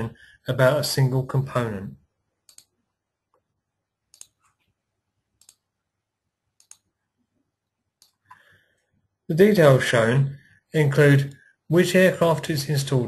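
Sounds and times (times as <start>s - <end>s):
computer mouse clicking: 2.4s - 3.5s, 4.1s - 4.8s, 5.4s - 5.7s, 6.6s - 7.0s, 8.0s - 8.5s.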